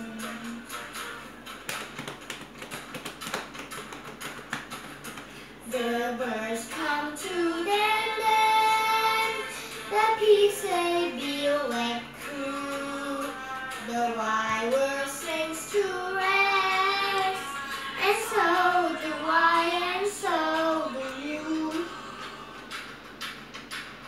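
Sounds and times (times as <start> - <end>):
child clapping and body slapping: 1.6 - 5.4, 22.7 - 24.0
girl singing: 5.6 - 22.0.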